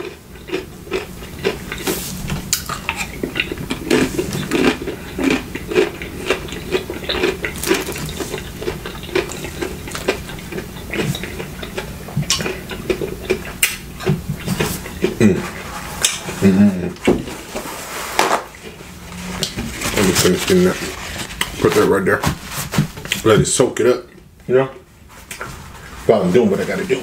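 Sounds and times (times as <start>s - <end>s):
spoon scraping through food: 0.0s - 13.6s, 14.2s - 21.8s
wet squishing of food: 0.0s - 17.4s.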